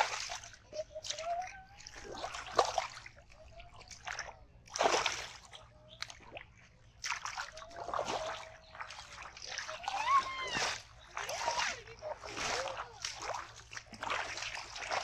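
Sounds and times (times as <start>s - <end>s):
hands splashing in muddy water: 0.0s - 15.0s.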